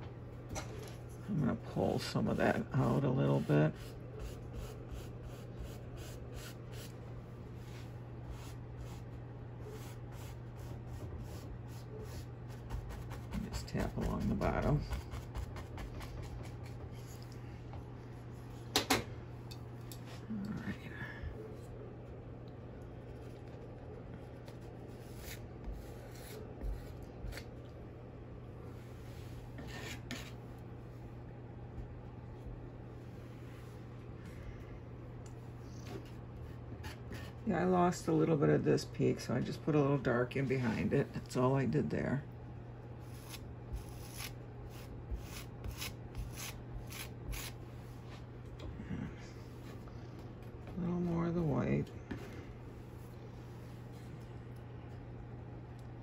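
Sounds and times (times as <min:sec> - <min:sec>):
steady low hum: 0:00.0 - 0:56.0
paintbrush scratching on canvas: 0:03.2 - 0:06.9, 0:43.1 - 0:47.6.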